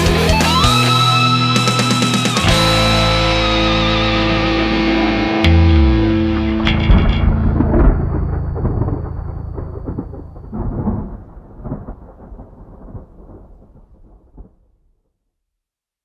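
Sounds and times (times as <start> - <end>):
heavy metal guitar chord ringing: 2.4 - 11.2
rumbling crackling storm: 4.5 - 15.1
thunderclap: 5.7 - 14.9.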